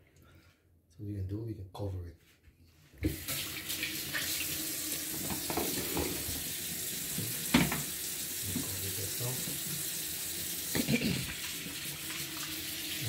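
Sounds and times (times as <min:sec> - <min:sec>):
faucet running into sink: 0:03.0 - 0:13.0.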